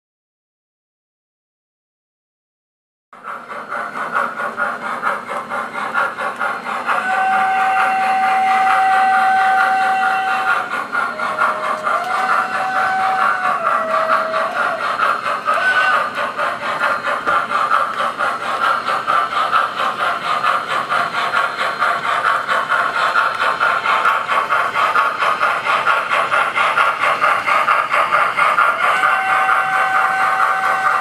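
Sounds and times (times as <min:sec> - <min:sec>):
model steam train chuffing: 0:03.2 - 0:31.0
steam whistle: 0:06.8 - 0:16.4, 0:28.6 - 0:31.0.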